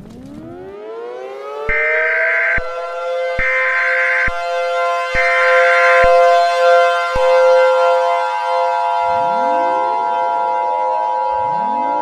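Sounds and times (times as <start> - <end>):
civil defense siren: 0.0 - 12.0
two-tone alert tone: 1.7 - 2.8, 11.3 - 12.0.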